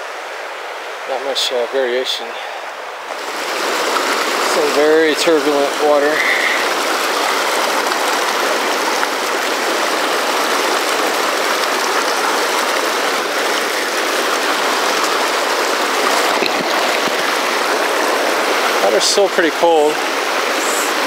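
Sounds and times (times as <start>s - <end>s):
river rushing over rocks: 0.0s - 21.0s.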